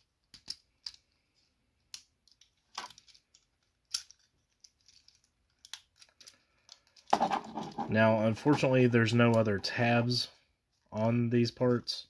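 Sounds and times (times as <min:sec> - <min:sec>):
plastic toy parts clicking: 0:00.2 - 0:01.1, 0:01.8 - 0:07.2.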